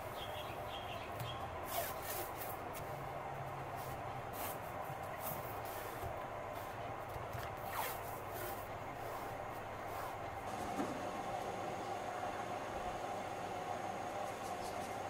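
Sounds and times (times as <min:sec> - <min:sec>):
masking tape peeling and rustling: 0:01.6 - 0:03.0, 0:03.7 - 0:10.3.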